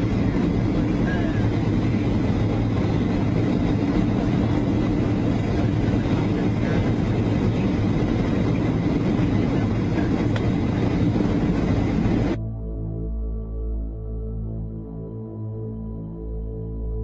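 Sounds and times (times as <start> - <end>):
jet engine and airflow in cabin: 0.0 - 12.4.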